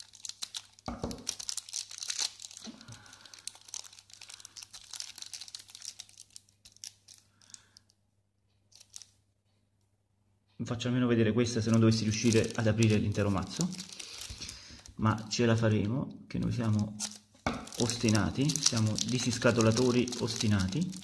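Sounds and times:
plastic wrap crinkling and tearing: 0.0 - 8.0, 8.7 - 9.2, 11.6 - 15.6, 16.4 - 21.0.

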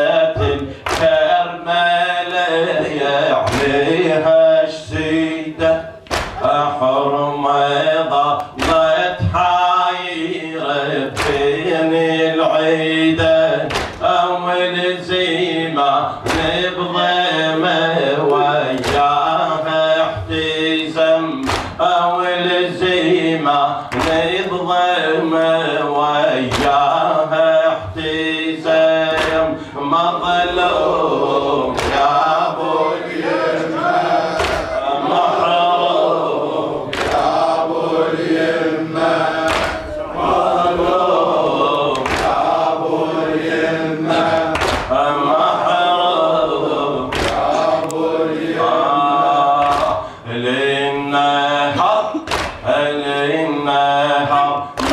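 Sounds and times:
men chanting a lament: 0.0 - 54.9
chest striking slaps: 6.1 - 6.4, 34.4 - 34.8, 39.5 - 39.8.

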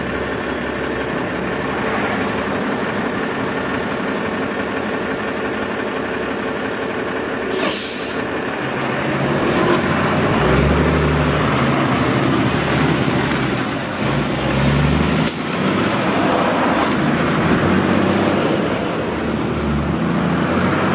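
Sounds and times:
truck engine pulling away: 0.0 - 20.9
air brakes hissing: 7.5 - 8.4.

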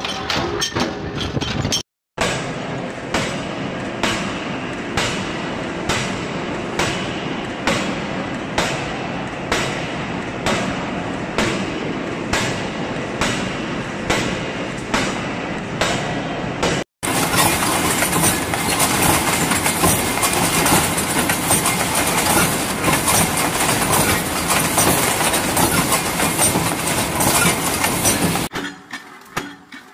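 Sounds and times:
power hammer striking hot steel: 2.2 - 29.9
machinery din: 17.0 - 28.5.

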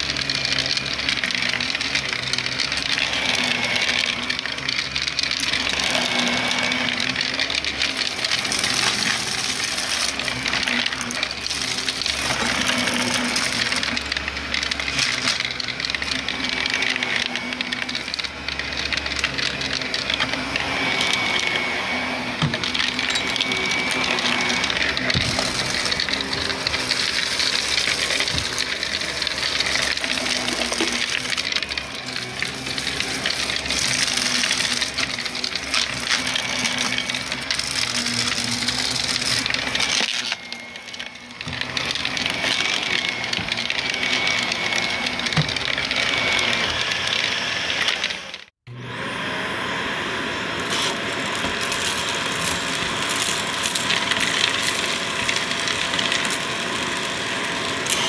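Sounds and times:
vacuum cleaner motor: 0.0 - 58.0
debris crackling in vacuum: 21.0 - 44.5.

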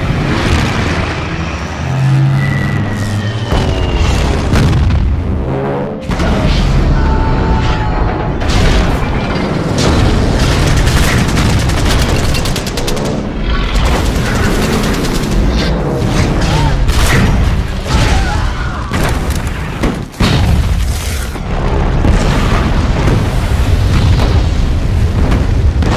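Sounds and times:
heavy explosions: 0.0 - 2.2, 3.4 - 25.9
rapid gunfire: 9.7 - 17.4.

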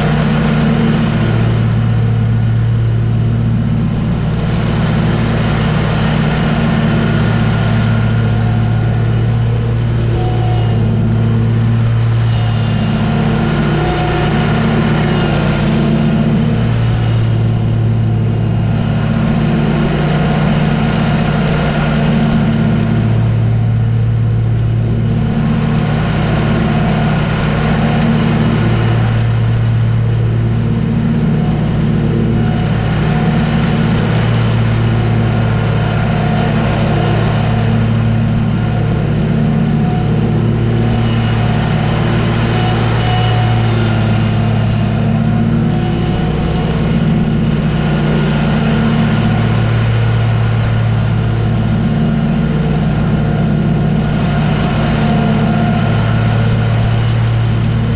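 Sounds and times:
riding mower engine droning: 0.0 - 57.9.

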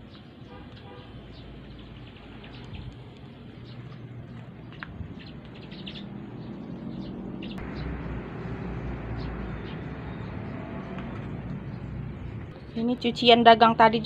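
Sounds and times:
outdoor background noise: 0.0 - 14.0
small birds chirping: 0.0 - 14.0
low hum: 6.9 - 12.8.

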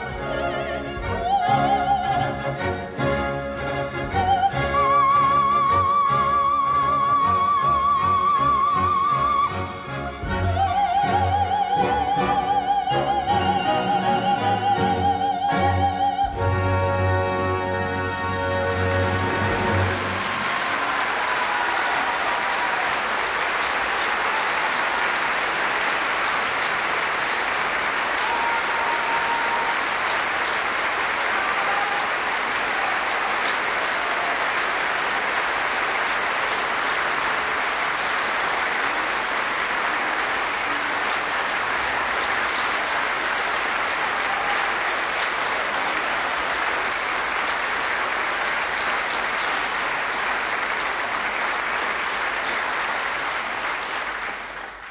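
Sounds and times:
audience applauding: 17.9 - 54.9.

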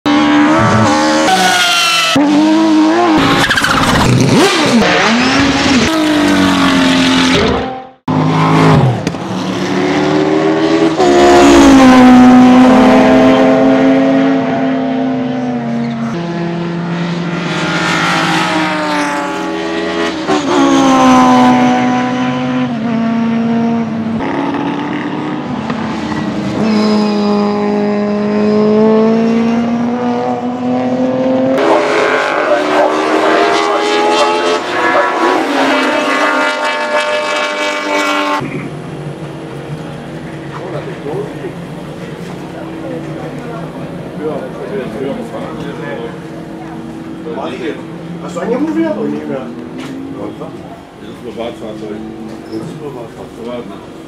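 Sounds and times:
car engine revving: 0.1 - 54.0
tyre squeal: 3.2 - 4.1, 52.3 - 52.8.

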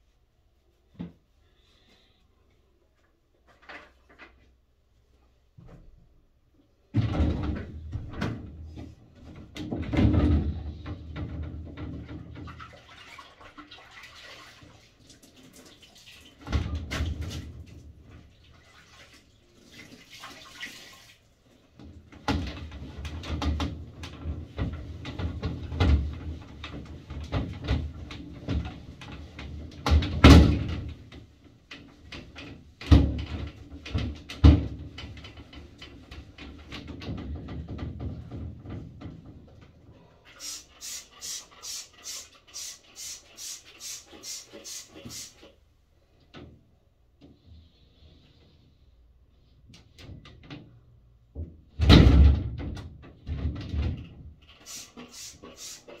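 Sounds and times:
knocks and bumps in shower: 6.8 - 12.9, 16.3 - 19.2, 21.7 - 39.8, 49.9 - 54.4.

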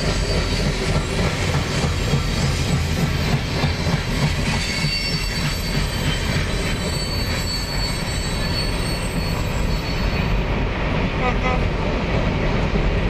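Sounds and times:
high wheel squeal: 0.0 - 1.2, 1.9 - 10.5
train wheels rumbling on rails: 0.0 - 13.0.

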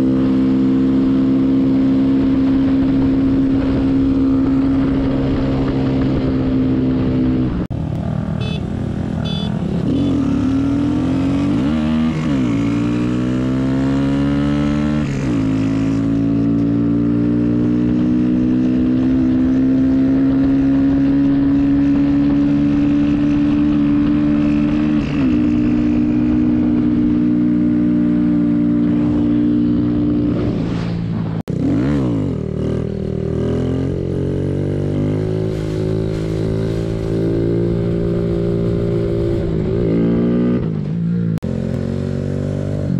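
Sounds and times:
motorcycle engine running: 0.0 - 30.3.

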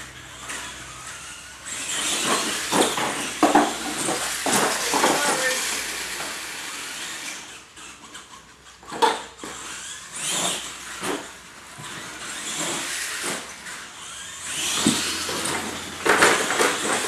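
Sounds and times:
toy truck motors whining: 0.0 - 17.0
toy trucks knocking on ramps: 0.6 - 6.8, 8.8 - 13.6, 14.5 - 17.0.

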